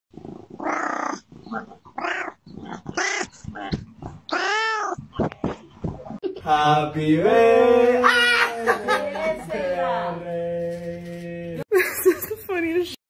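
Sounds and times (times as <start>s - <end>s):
cat meowing: 4.3s - 5.0s.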